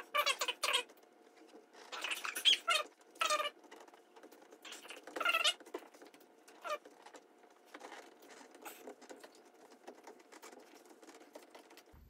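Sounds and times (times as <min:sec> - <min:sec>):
vinyl sheet rustling and crackling: 0:00.0 - 0:12.0.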